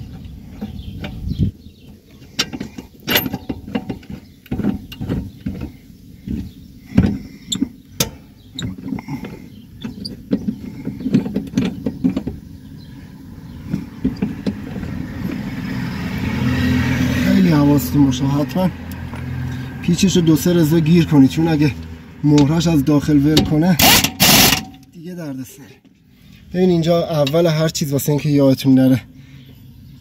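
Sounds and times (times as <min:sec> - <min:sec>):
wrench clicking and knocking: 0:23.3 - 0:24.8.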